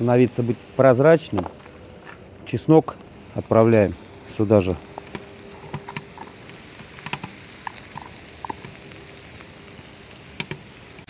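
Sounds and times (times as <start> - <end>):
onion and garlic sizzling in oil: 0.0 - 2.0, 2.6 - 11.0
small crackles and pops: 2.9 - 11.0.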